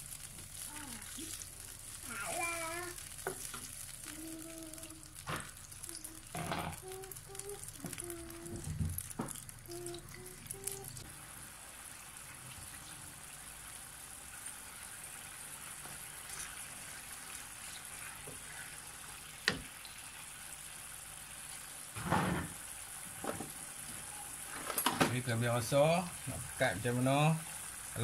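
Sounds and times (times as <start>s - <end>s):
stirring: 0.0s - 11.0s
sauce simmering in a pan: 0.0s - 28.0s.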